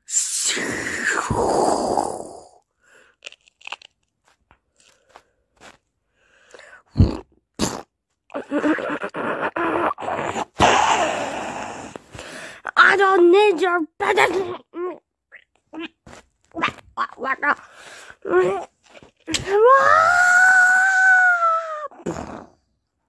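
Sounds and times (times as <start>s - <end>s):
cartoon crunching and chewing: 3.0s - 5.9s, 18.4s - 19.4s.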